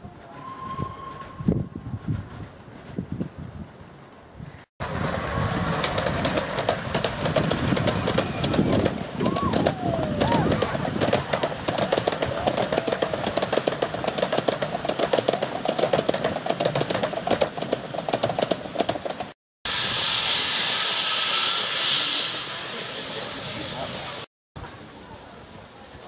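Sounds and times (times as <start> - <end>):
train wheels clicking on track: 4.8 - 24.1
steam locomotive hissing: 19.7 - 26.0.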